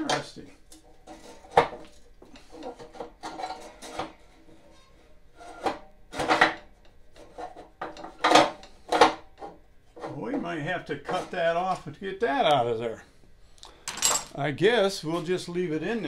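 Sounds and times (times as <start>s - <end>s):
metal scraping: 0.0s - 12.1s.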